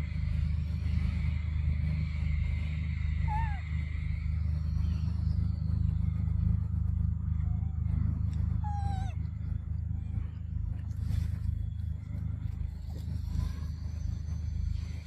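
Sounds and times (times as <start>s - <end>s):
low rumble: 0.0s - 15.0s
baby monkey cooing: 3.2s - 3.6s.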